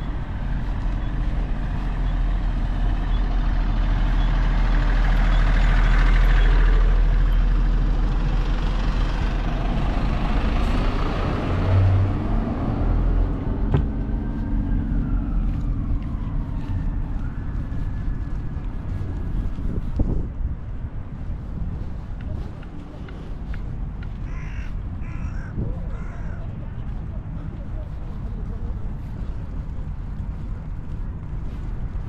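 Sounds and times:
heavy vehicle engine passing: 0.0s - 20.3s
light traffic noise: 0.0s - 32.0s.

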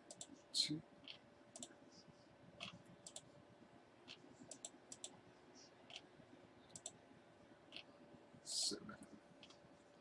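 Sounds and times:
faint mouse clicks: 0.0s - 0.4s, 1.0s - 1.8s, 2.6s - 3.3s, 4.1s - 5.2s, 6.7s - 7.0s.

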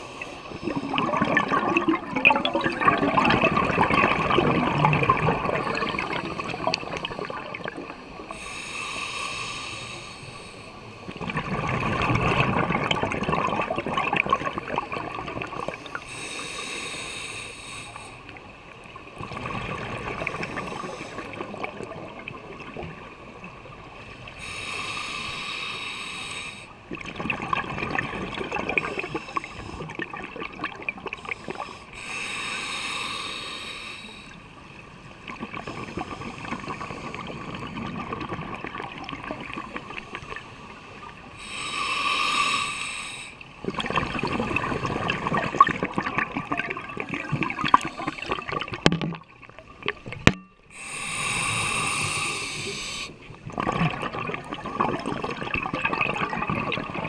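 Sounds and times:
exhaled bubbles gurgling: 0.0s - 8.5s, 11.0s - 16.2s, 18.4s - 24.4s, 26.8s - 31.8s, 34.7s - 42.8s, 43.4s - 57.0s
regulator hissing inhale: 8.3s - 10.9s, 15.9s - 18.4s, 24.4s - 26.8s, 28.8s - 29.9s, 31.2s - 34.6s, 40.0s - 43.5s, 47.7s - 48.5s, 50.7s - 53.3s.

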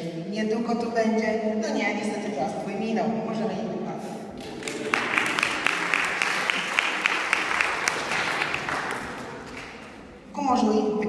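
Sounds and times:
audience applauding: 4.4s - 10.1s.

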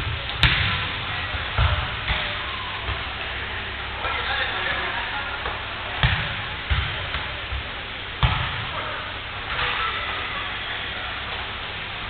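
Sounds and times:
steady background noise: 0.0s - 12.0s
ball kicked and bouncing: 5.4s - 7.3s, 8.2s - 8.6s.

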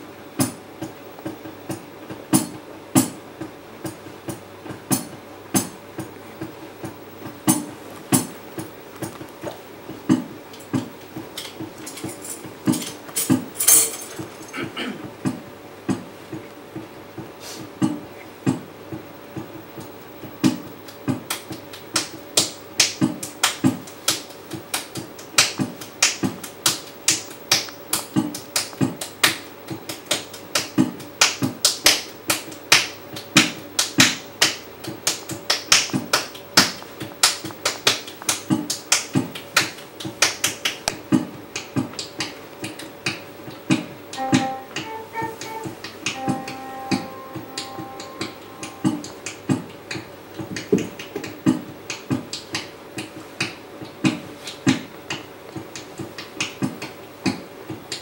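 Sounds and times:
sharp percussive clicks: 19.8s - 53.5s
electronic keyboard notes: 44.1s - 50.3s.

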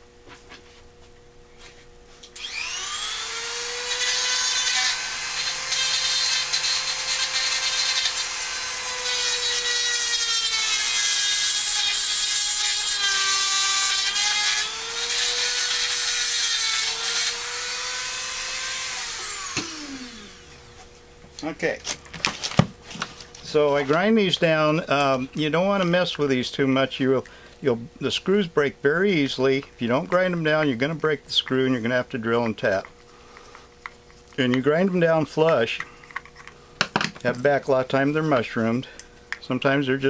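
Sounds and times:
power grinder grinding metal: 2.4s - 20.8s.

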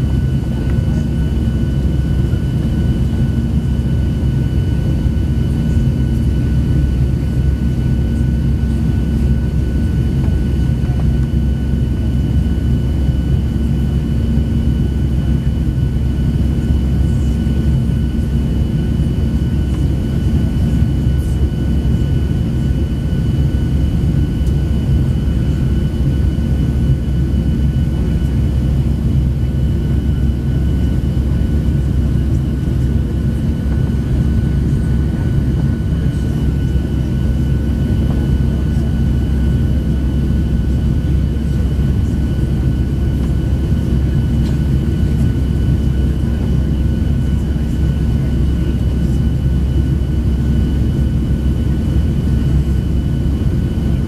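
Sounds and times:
jet cabin low rumble: 0.0s - 54.0s.

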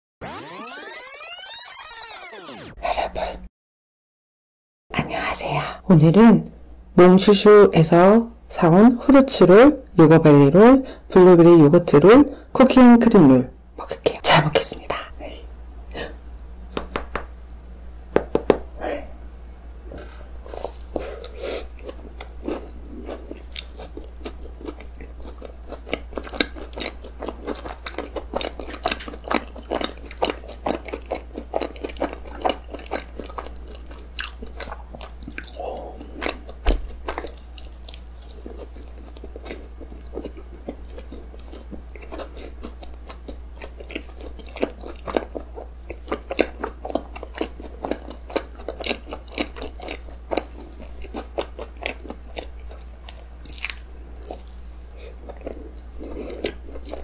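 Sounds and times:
small crunches: 20.4s - 31.1s, 45.8s - 57.0s
biting and chewing cake: 20.4s - 57.0s.

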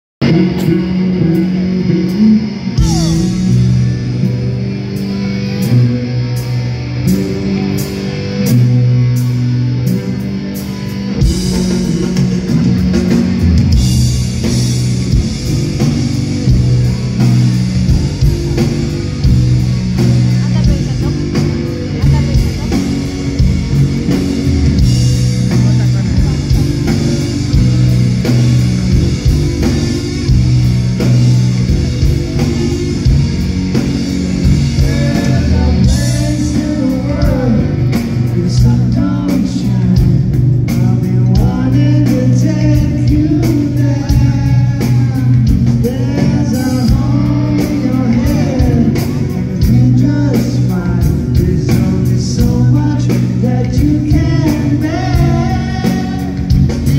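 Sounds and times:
person singing: 0.2s - 4.4s, 34.4s - 56.9s
drums: 0.2s - 56.9s
electric guitars: 0.2s - 56.9s.

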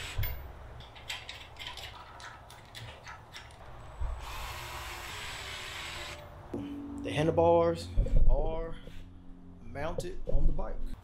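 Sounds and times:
cordless drill running: 4.2s - 6.2s.

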